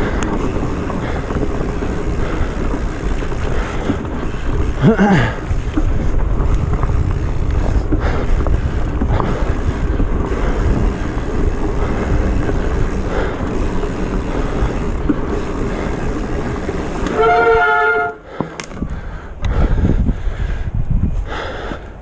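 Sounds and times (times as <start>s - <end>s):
bike tyres riding through mud: 0.0s - 20.4s
wind buffeting microphone: 0.0s - 22.0s
bike brakes squealing: 15.6s - 18.2s.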